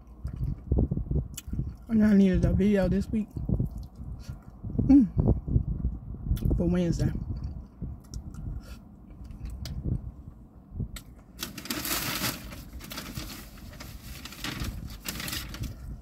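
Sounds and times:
low rumble: 0.0 - 16.0.

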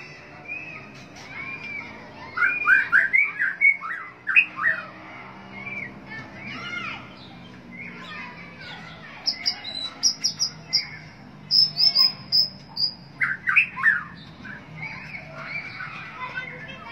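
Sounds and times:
bird singing whistled notes: 9.3 - 14.2.

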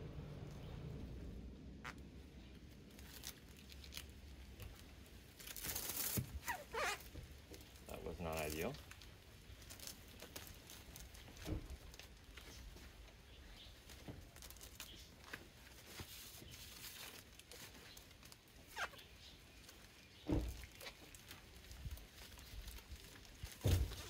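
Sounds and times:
plastic tape crinkling and rustling: 1.8 - 24.0
thump: 20.3 - 20.6, 23.6 - 24.0.

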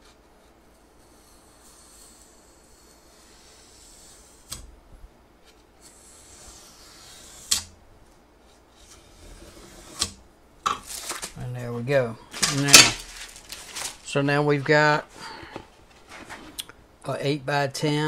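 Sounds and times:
knife scoring scratchy rasp: 0.7 - 4.6, 5.8 - 7.7, 8.8 - 10.2.

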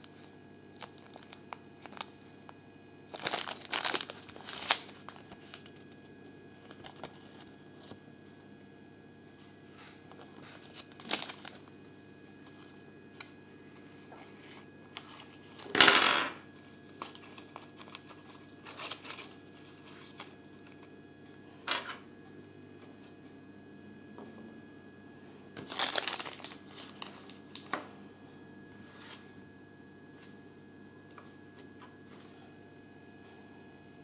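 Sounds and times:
plastic wrapper rustling: 0.0 - 2.4, 3.1 - 6.0, 6.6 - 8.0, 10.1 - 11.7, 14.2 - 15.8, 16.9 - 20.8, 25.6 - 27.8.

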